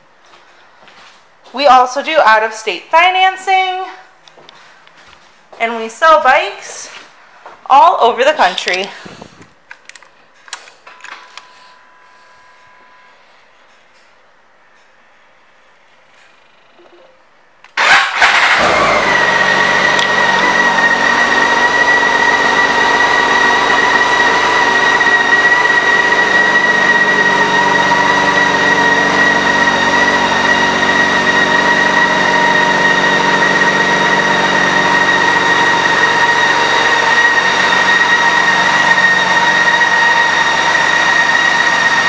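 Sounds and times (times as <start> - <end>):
high whine: 10.8 - 17.6.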